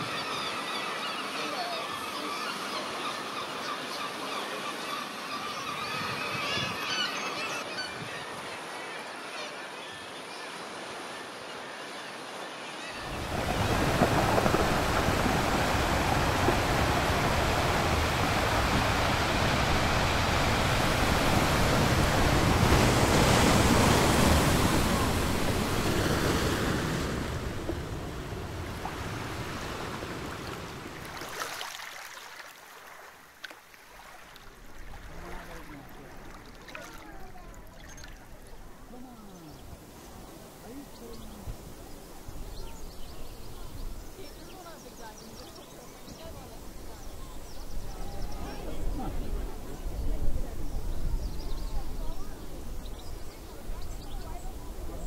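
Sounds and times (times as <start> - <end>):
seabirds calling: 0.0 - 55.0
sea surf rushing: 12.8 - 33.2
wind on microphone: 13.0 - 31.0, 46.7 - 55.0.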